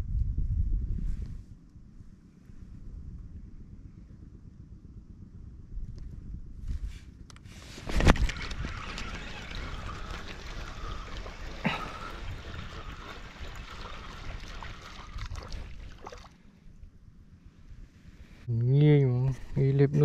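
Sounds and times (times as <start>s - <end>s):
water splashing and trickling: 8.2s - 16.5s.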